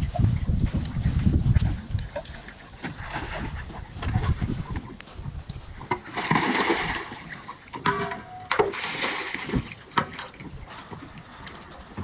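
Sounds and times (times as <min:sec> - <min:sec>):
pool water splashing: 0:02.1 - 0:04.5, 0:05.8 - 0:12.0
sharp knocks: 0:07.8 - 0:08.7.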